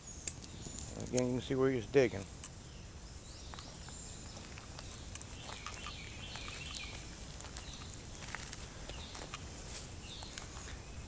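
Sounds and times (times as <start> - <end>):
bird chirping: 0.0 - 11.0
small clicks and rustles: 3.5 - 10.8.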